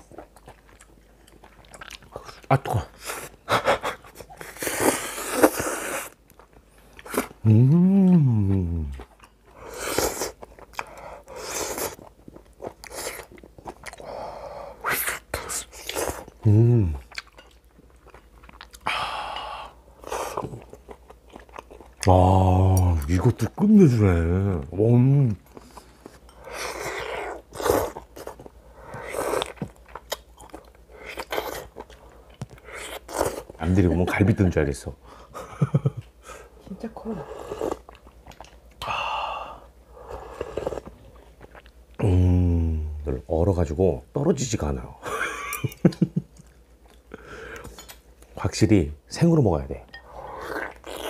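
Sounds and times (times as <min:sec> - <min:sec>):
chewing: 0:00.0 - 0:07.4, 0:08.0 - 0:14.1, 0:17.0 - 0:18.9, 0:20.0 - 0:22.1, 0:25.3 - 0:33.6, 0:37.6 - 0:38.9, 0:40.1 - 0:41.8, 0:50.3 - 0:51.0
man humming mmm: 0:07.4 - 0:09.0, 0:16.4 - 0:17.1, 0:42.0 - 0:43.0.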